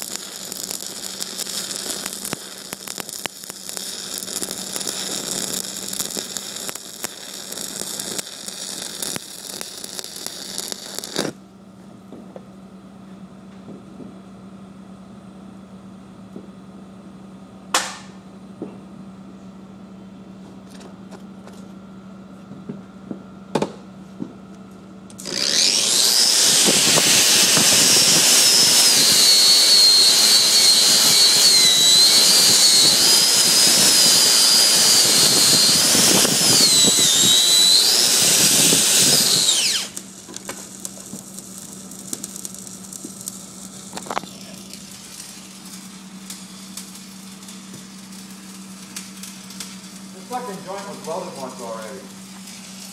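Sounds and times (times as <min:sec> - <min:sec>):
welding arc crackling and hissing: 0:00.0 - 0:11.4, 0:25.1 - 0:52.9
steady low hum: 0:00.0 - 0:52.9
angle grinder on steel: 0:25.2 - 0:40.0.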